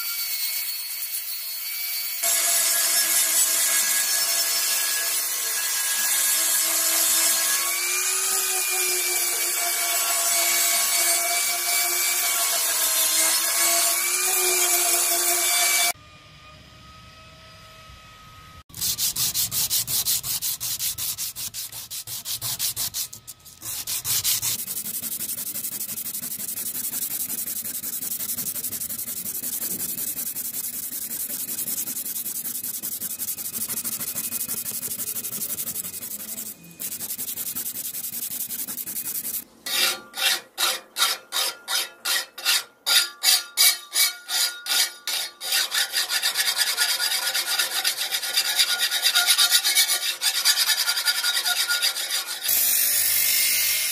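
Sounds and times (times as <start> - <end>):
hand file stroking blade: 18.7 - 53.9
sandpaper scraping steel blade: 18.7 - 53.9.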